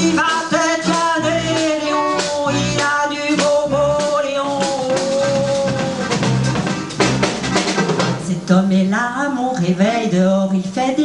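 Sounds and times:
accordion: 0.0 - 8.3
drum kit and percussion: 0.0 - 8.6
low bass notes: 0.0 - 9.0
sharp drum hit: 3.4 - 8.3.

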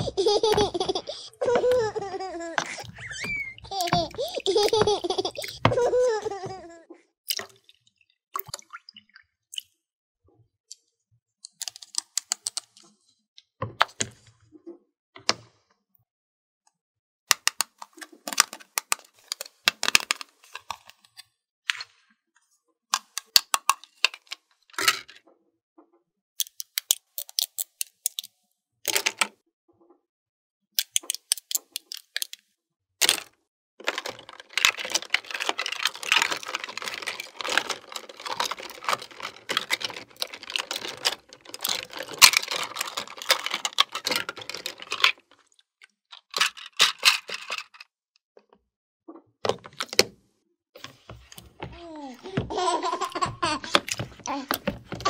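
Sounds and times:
plastic toy dishes clattering: 0.0 - 6.7, 17.3 - 21.1, 23.0 - 25.2, 28.9 - 29.4, 30.8 - 32.4, 33.0 - 45.5, 46.1 - 47.9, 51.1 - 55.0
plastic pieces rattling in rack: 0.0 - 6.8, 33.0 - 45.4, 46.2 - 47.8, 52.3 - 55.0.

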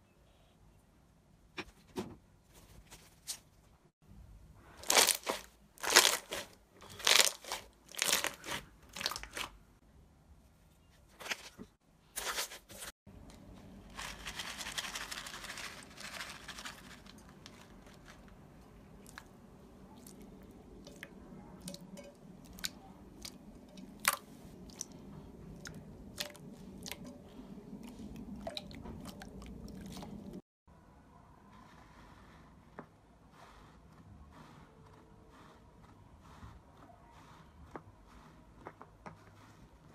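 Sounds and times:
slime squelching and popping: 4.8 - 9.5.

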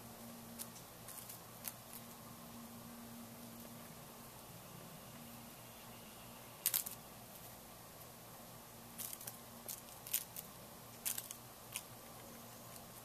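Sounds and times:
turkey pecking in dry grass: 6.6 - 7.6, 8.8 - 13.0.

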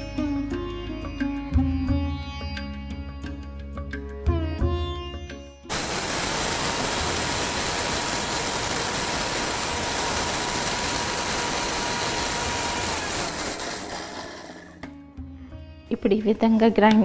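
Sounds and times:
mixer grinder whirring: 5.7 - 15.0.

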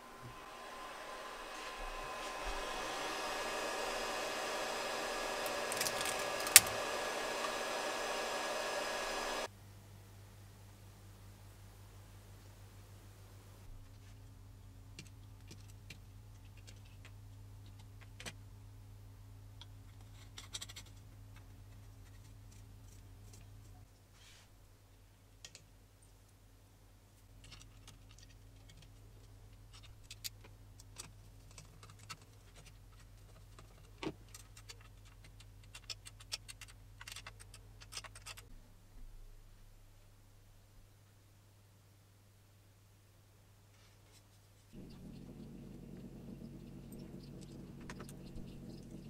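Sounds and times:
steady low hum: 0.0 - 15.0, 44.7 - 49.0.

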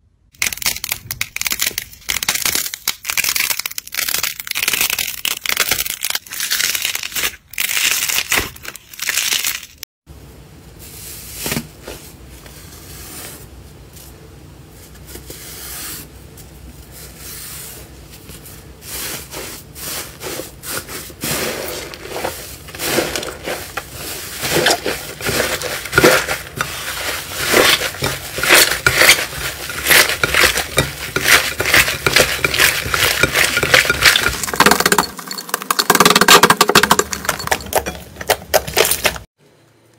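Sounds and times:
slime squishing and crackling: 0.3 - 9.8, 20.7 - 39.2.

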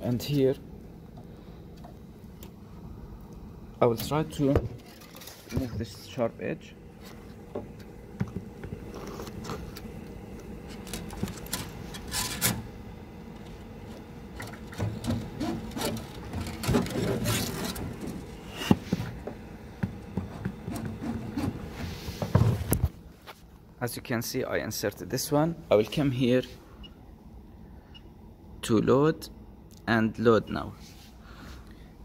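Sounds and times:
handling rubbing and scraping: 10.6 - 12.6, 13.4 - 23.5.

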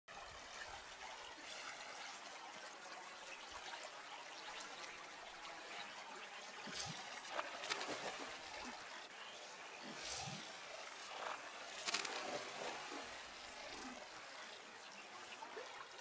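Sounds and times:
shallow river current: 0.1 - 16.0
sharp water splashes: 9.8 - 14.1.

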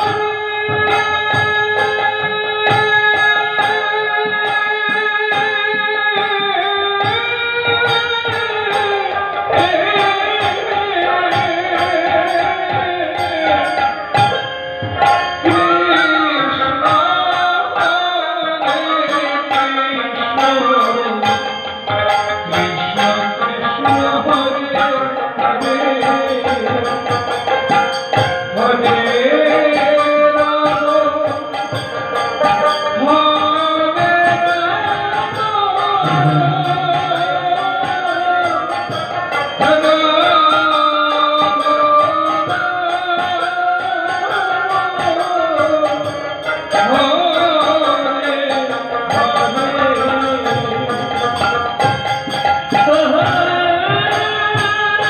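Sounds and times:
hand drums: 0.0 - 55.0
person singing gliding melody: 32.6 - 51.1.

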